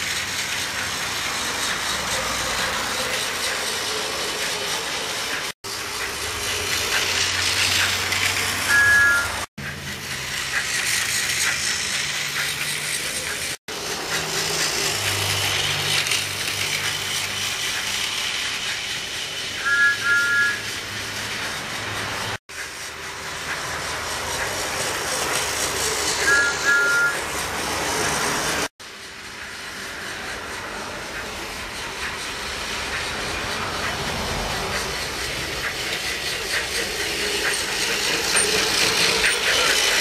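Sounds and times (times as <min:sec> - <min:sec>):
toy train motor whirring: 0:00.0 - 0:40.0
wheels rattling on track: 0:00.0 - 0:40.0
toy train double toot: 0:06.9 - 0:09.5, 0:18.5 - 0:20.9, 0:26.0 - 0:27.3
steady steam hiss: 0:09.6 - 0:40.0.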